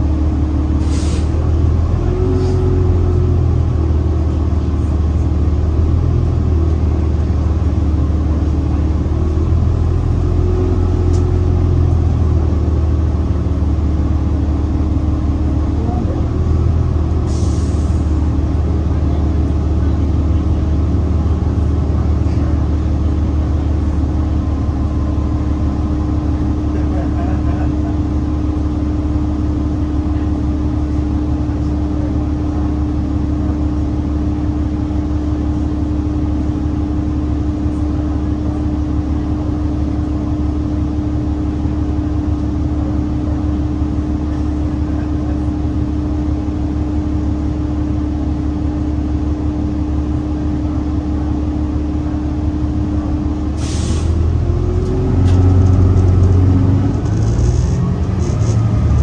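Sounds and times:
bus drivetrain humming: 0:00.0 - 0:59.0
bus pulling away whine: 0:00.0 - 0:59.0
air brakes hissing: 0:00.8 - 0:01.4, 0:17.2 - 0:18.1, 0:53.6 - 0:54.2.

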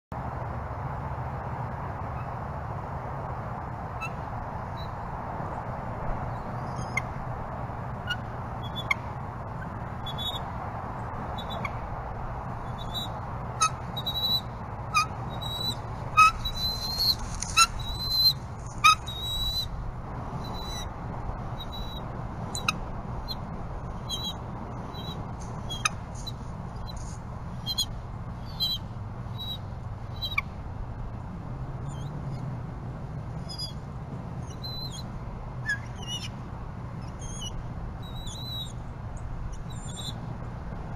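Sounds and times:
low background hum: 0:00.2 - 0:40.9
eagles chirping and whistling: 0:12.6 - 0:19.7, 0:35.6 - 0:36.3.

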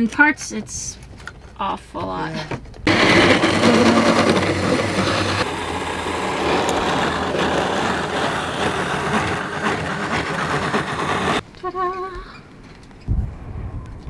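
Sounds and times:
power tool cutting sheet metal: 0:02.9 - 0:11.4.

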